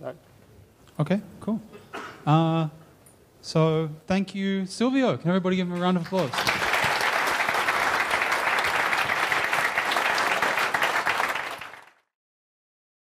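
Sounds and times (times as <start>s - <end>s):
audience applauding: 5.9s - 12.1s.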